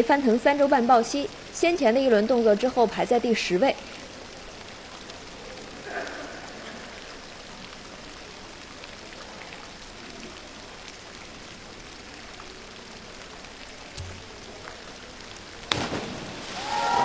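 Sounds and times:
droplets ticking: 0.0s - 17.0s
water spraying onto pool: 2.5s - 17.0s.

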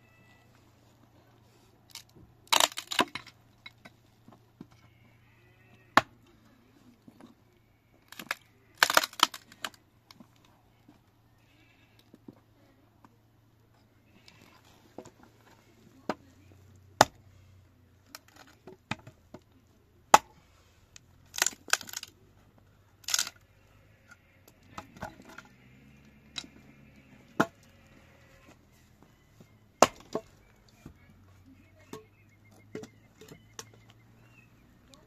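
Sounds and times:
chopping knocks and cracks: 20.1s - 20.3s, 29.8s - 30.3s.

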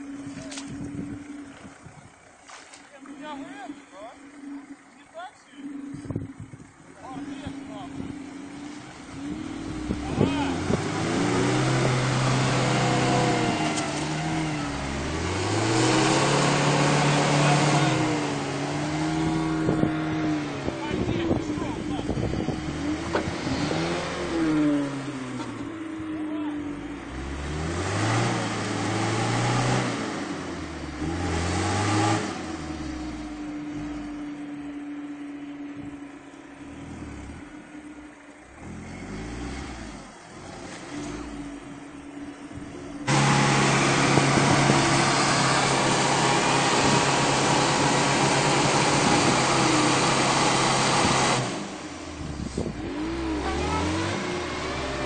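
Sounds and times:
car engine revving hard: 3.1s - 35.0s, 36.5s - 55.0s
water and mud spraying: 43.1s - 55.0s.

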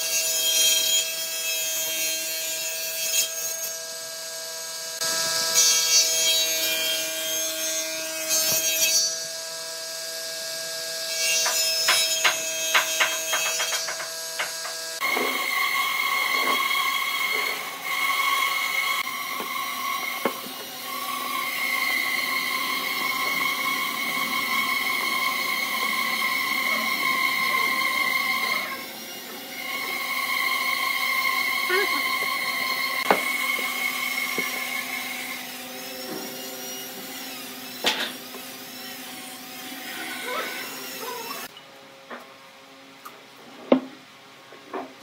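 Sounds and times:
saw cutting wood: 0.0s - 41.5s
table saw running: 3.7s - 41.5s.

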